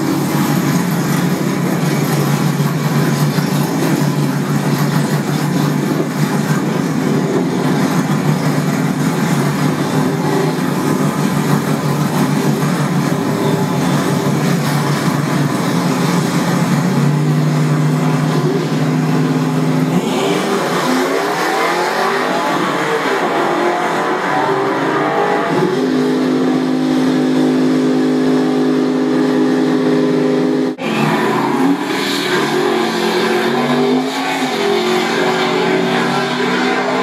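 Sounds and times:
race car engine accelerating: 0:00.0 - 0:37.0.

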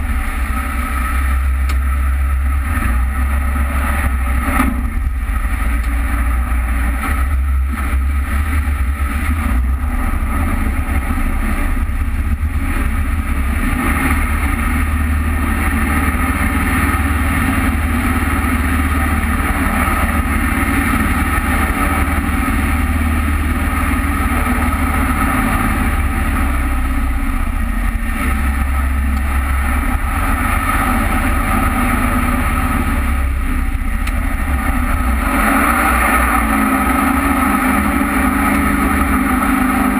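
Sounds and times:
deep low rumble: 0:00.0 - 0:39.9
jet boat engine droning: 0:00.0 - 0:39.9
churned water rushing: 0:06.2 - 0:39.9.

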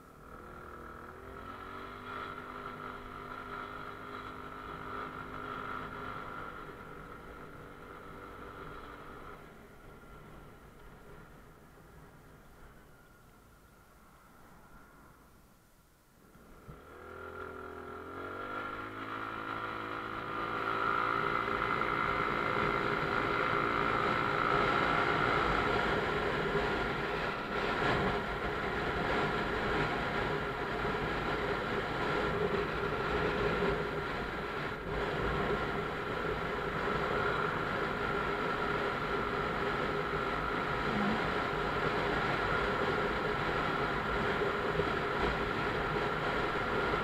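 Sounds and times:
motorcycle engine running: 0:00.0 - 0:12.3, 0:16.5 - 0:47.0
steady high whine: 0:19.0 - 0:47.0.

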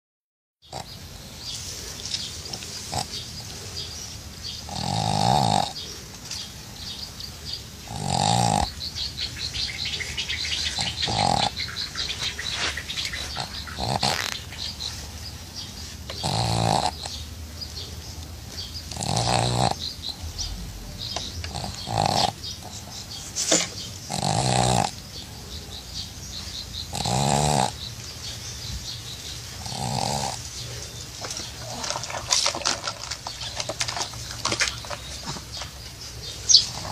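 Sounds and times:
dog snorting breaths: 0:07.8 - 0:17.2, 0:18.6 - 0:27.9, 0:28.7 - 0:32.8, 0:33.6 - 0:36.9.

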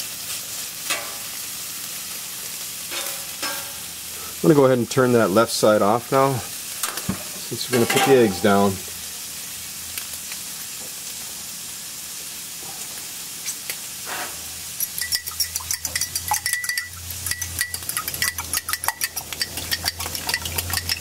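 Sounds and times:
oil and ham sizzling on griddle: 0:00.0 - 0:21.0
eggs whisked in a bowl: 0:14.8 - 0:21.0.

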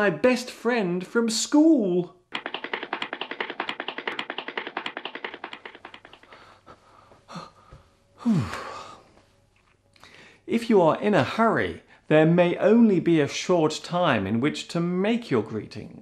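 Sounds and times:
man gasping: 0:06.3 - 0:09.1
man moaning: 0:08.2 - 0:09.0.

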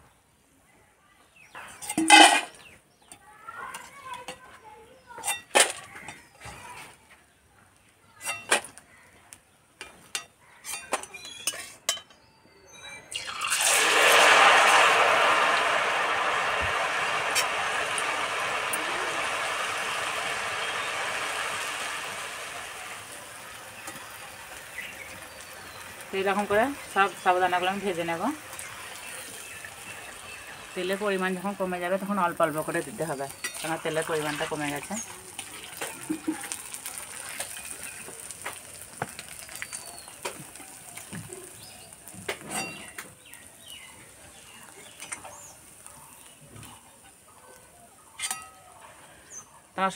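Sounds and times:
food deep-frying in oil: 0:12.7 - 0:49.9.

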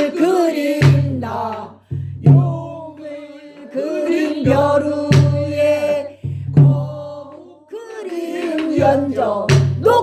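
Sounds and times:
deep drum strikes: 0:00.7 - 0:02.9, 0:04.3 - 0:07.2, 0:08.6 - 0:10.0
woman singing: 0:02.4 - 0:10.0.

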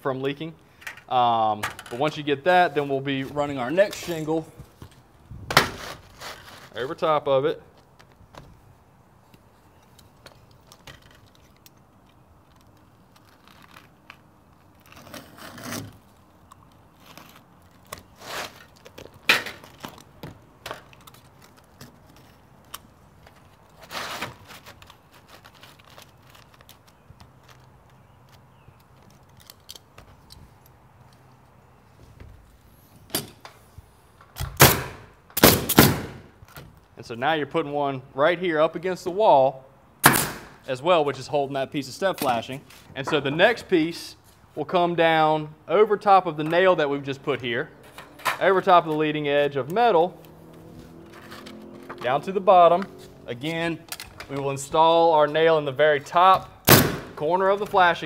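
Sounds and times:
roofing materials rustling and tapping: 0:00.8 - 0:07.0, 0:07.7 - 0:33.6
nail gun shots: 0:34.4 - 0:36.3, 0:40.0 - 0:40.6, 0:56.6 - 0:57.2.

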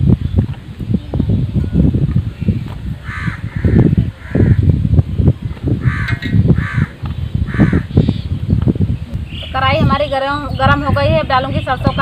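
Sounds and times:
bird calling: 0:05.8 - 0:08.5, 0:09.2 - 0:12.0.

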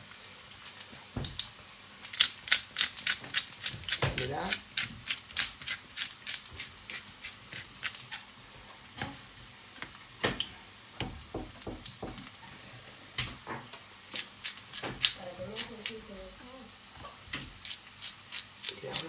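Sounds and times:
potato sizzling on a griddle: 0:00.0 - 0:19.0
taps on a cutting board: 0:11.0 - 0:12.2.

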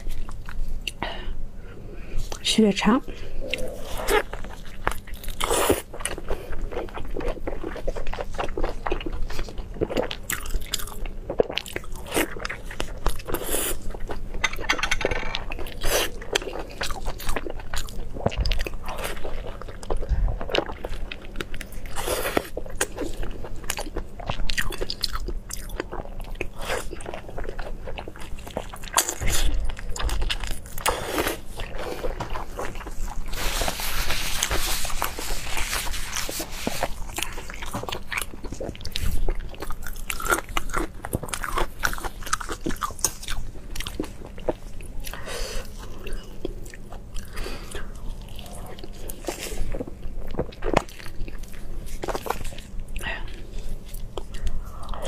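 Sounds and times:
wet chewing and crunching: 0:03.4 - 0:55.0.

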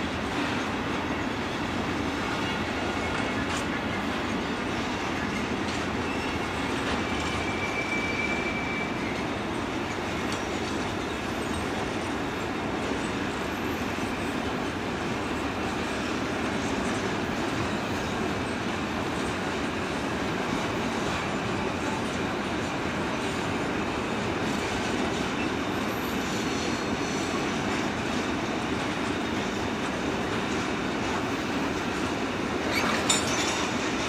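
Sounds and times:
train wheels rumbling on rails: 0:00.0 - 0:34.0
high wheel squeal: 0:00.5 - 0:12.1, 0:24.5 - 0:27.5, 0:32.6 - 0:34.0.

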